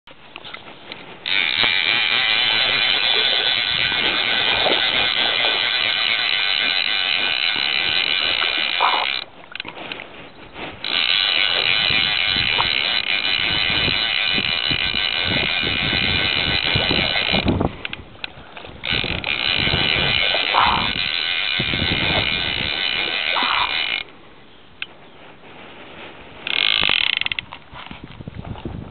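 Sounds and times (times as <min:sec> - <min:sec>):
fishing reel buzzing: 0:01.2 - 0:09.7, 0:10.8 - 0:17.7, 0:18.8 - 0:24.1, 0:26.4 - 0:27.6.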